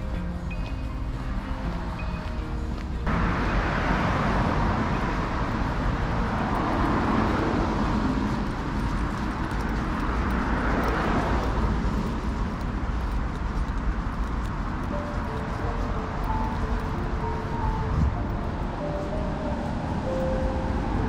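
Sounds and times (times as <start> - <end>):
cars passing: 0.0 - 21.0
steady low traffic rumble: 0.0 - 21.0.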